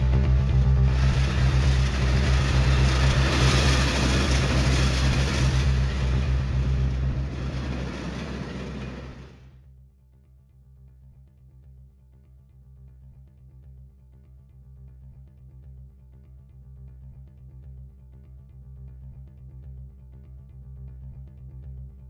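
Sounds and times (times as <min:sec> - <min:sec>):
low drone: 0:00.0 - 0:09.5
passenger train rushing past: 0:00.4 - 0:09.5.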